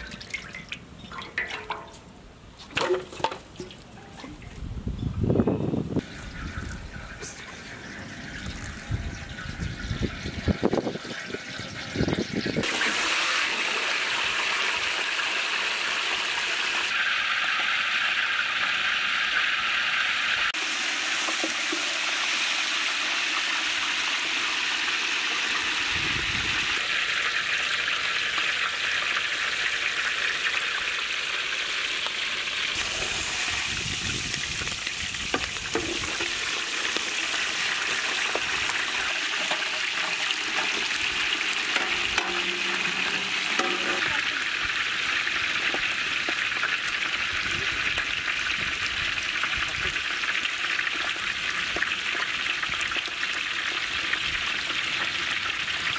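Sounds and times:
meat sizzling in hot oil: 6.0 - 55.9.

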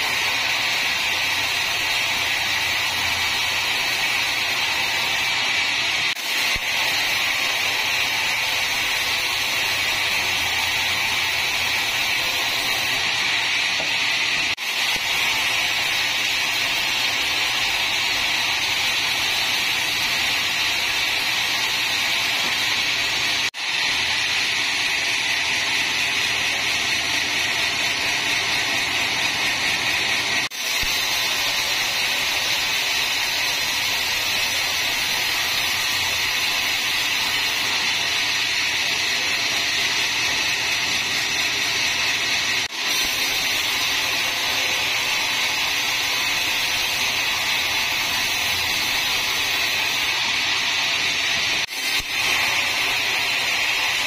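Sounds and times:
band saw cutting log: 0.0 - 54.0.

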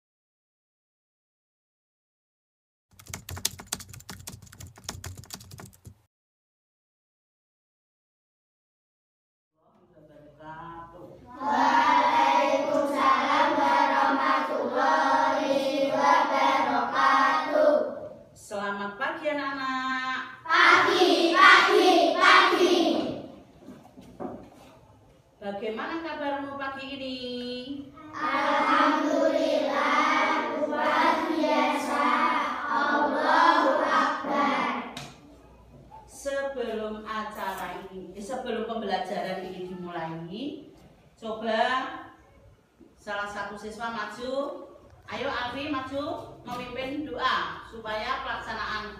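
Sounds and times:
children singing in unison: 11.3 - 18.1, 20.5 - 23.3, 28.2 - 35.0.

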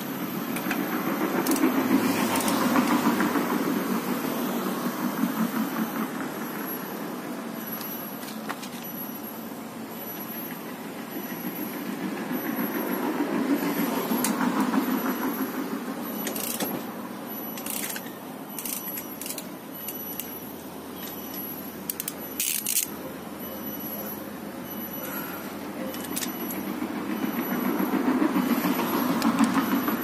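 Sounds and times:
socket wrench clicking: 17.6 - 20.3, 21.9 - 22.9.

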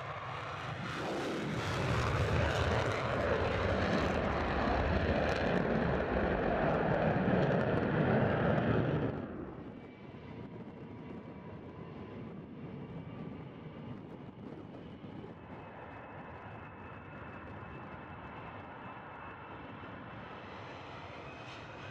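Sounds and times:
jet transport turbofans rumbling: 0.0 - 9.7
jet engine roar on afterburner: 0.0 - 10.0.

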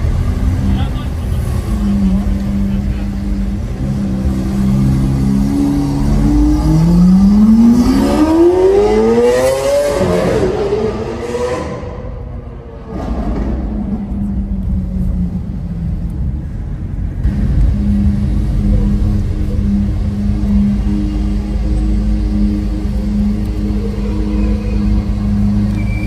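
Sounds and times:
car engine accelerating: 0.0 - 26.0
low engine drone: 0.0 - 26.0.

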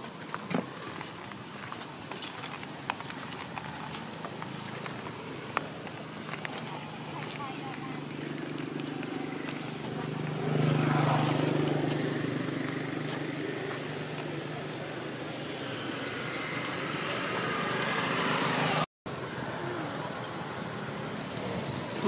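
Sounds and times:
motor engine humming: 1.9 - 18.8.

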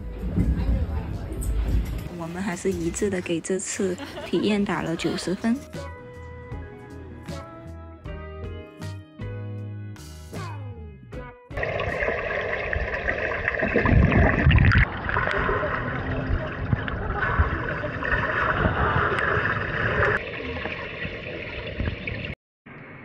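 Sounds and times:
underwater water churning and bubbling: 11.6 - 22.4.

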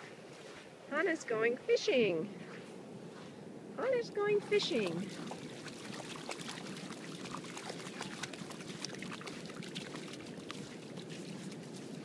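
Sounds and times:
dog wading through water: 4.2 - 12.0
paws splashing: 4.4 - 12.0.

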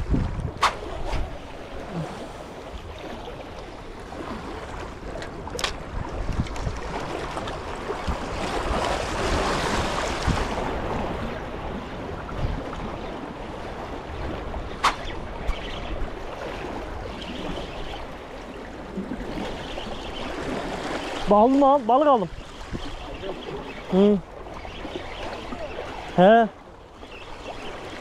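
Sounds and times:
sea water splashing against concrete: 0.0 - 10.9
wind on microphone: 0.0 - 28.0.

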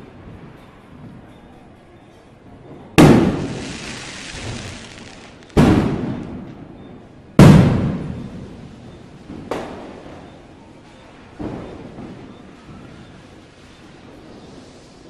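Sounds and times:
fireworks bangs: 2.7 - 10.4, 11.2 - 14.9
fireworks crackling hiss: 3.0 - 6.5, 11.5 - 15.0.

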